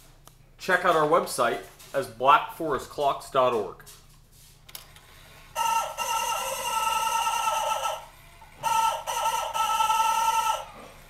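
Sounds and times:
rooster clock crowing: 0:05.5 - 0:11.0.

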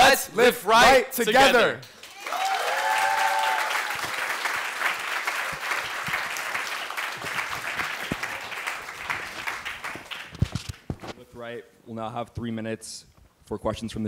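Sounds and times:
audience applauding: 0:01.9 - 0:10.9
voiced cheer: 0:02.0 - 0:04.4.

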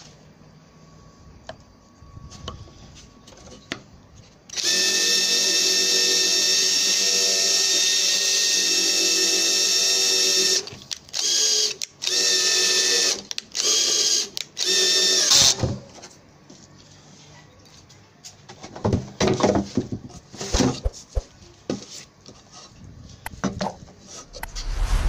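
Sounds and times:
power drill driving screw: 0:04.5 - 0:15.6.

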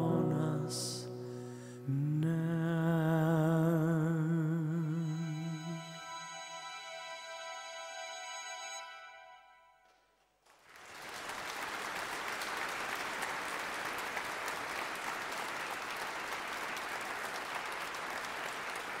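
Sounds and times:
audience applauding: 0:10.4 - 0:19.0.

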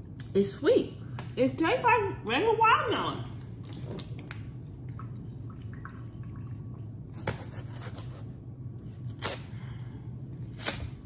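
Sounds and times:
knife slicing watermelon squishing: 0:07.1 - 0:11.0.

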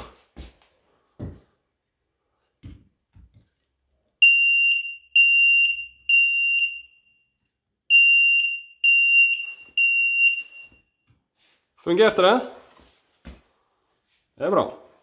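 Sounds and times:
smoke alarm beeps: 0:04.2 - 0:11.0.

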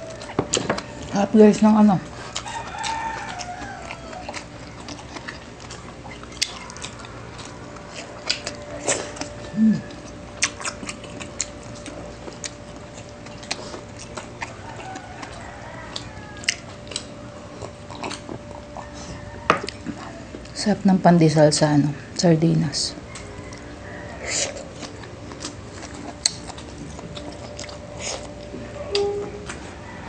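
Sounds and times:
chewing and mouth noises: 0:00.0 - 0:20.6, 0:23.0 - 0:29.8
person humming mm: 0:08.8 - 0:10.0, 0:28.0 - 0:29.6.

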